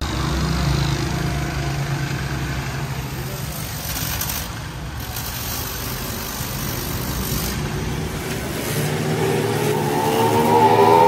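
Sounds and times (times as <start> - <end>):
rising whine: 8.1 - 11.0.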